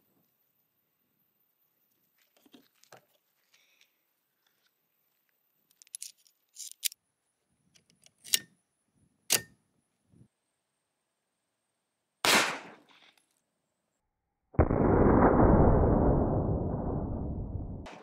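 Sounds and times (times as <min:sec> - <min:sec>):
metal pistol parts clicking: 0:05.7 - 0:07.0.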